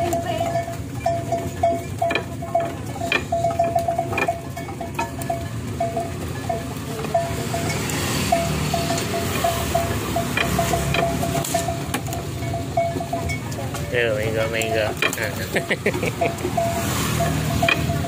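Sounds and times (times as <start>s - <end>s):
ox bells clinking: 0.0s - 18.0s
motorcycle rushing past: 7.4s - 11.9s, 16.3s - 18.0s.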